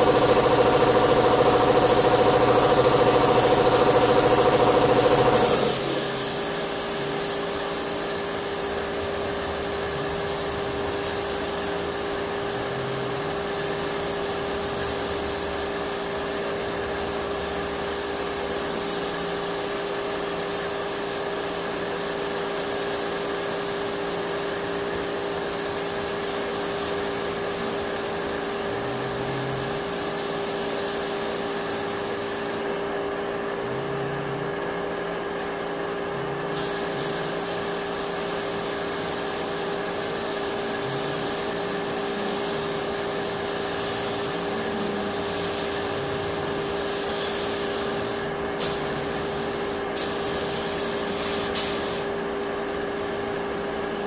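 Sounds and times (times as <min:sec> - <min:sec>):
high-pitched running sound: 0:00.0 - 0:07.3
air hissing from spray gun: 0:00.0 - 0:32.8, 0:36.6 - 0:52.2
spray equipment drone: 0:00.0 - 0:32.8, 0:35.9 - 0:52.2.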